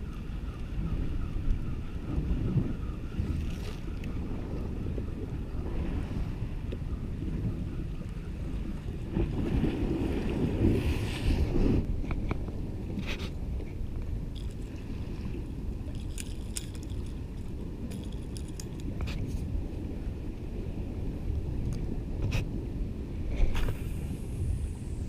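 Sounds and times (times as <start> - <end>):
wind buffeting microphone: 0.0 - 25.0
sea waves against rocks: 8.8 - 25.0.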